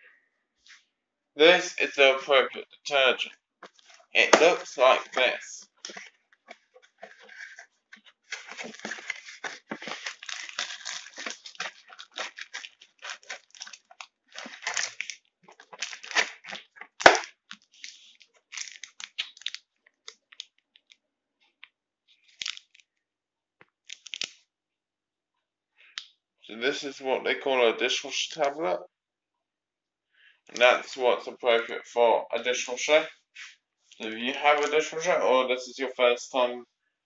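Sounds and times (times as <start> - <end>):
plastic wrappers crinkling: 3.6 - 21.0, 22.2 - 22.8, 23.8 - 24.4
cardboard box rummaging: 8.3 - 13.8.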